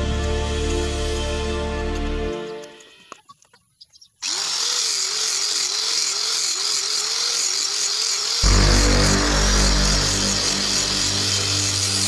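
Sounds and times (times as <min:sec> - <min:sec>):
angle grinder cutting wood: 0:04.2 - 0:12.0.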